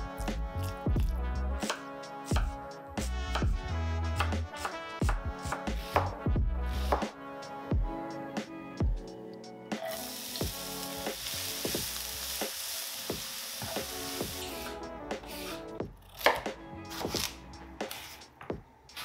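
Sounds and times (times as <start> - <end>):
onion sizzling in frying pan: 9.8 - 14.6
knife chopping on cutting board: 16.2 - 17.3.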